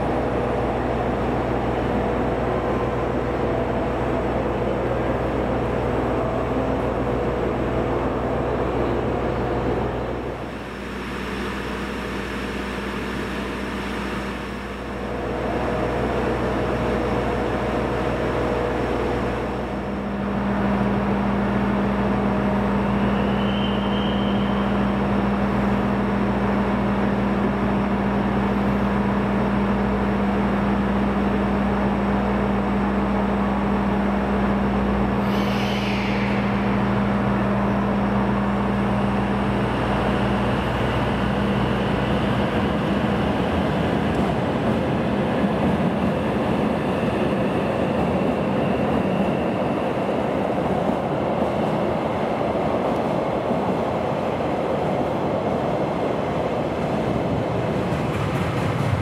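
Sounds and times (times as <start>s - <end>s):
train machine hum: 0.0s - 59.0s
brief high squeal: 22.8s - 24.8s, 35.2s - 37.0s.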